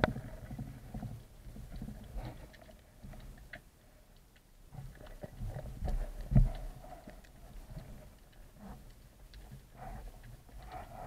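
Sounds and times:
faint clicks and knocks: 0:00.0 - 0:11.0
low underwater rumbling: 0:00.0 - 0:11.0.

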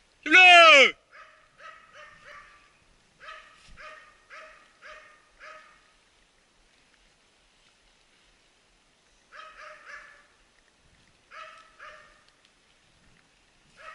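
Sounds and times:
dog barking: 0:01.1 - 0:05.9, 0:09.3 - 0:10.3, 0:11.3 - 0:12.2.

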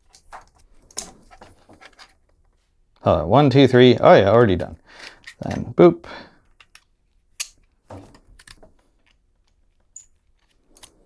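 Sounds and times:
plastic parts clicking and tapping: 0:06.4 - 0:11.0.

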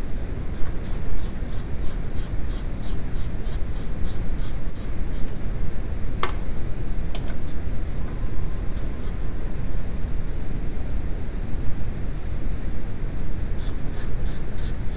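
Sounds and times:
steady rushing hiss: 0:00.0 - 0:14.9.

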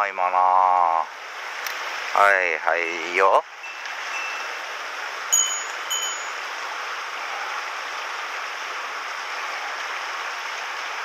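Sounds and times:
stream running over rocks: 0:00.2 - 0:11.0
high metallic rings: 0:03.6 - 0:04.6, 0:05.3 - 0:06.6.

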